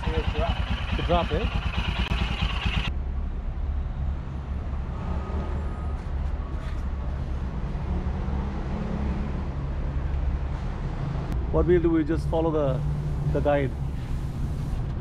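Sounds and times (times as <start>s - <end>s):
motorcycle engine idling: 0.0s - 2.9s.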